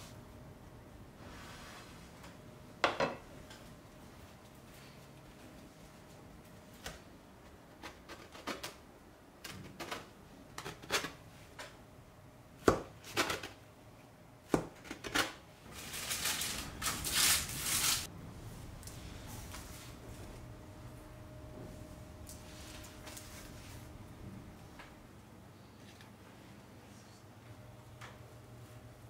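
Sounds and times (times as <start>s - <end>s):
rustling on baking tray: 15.6s - 18.1s.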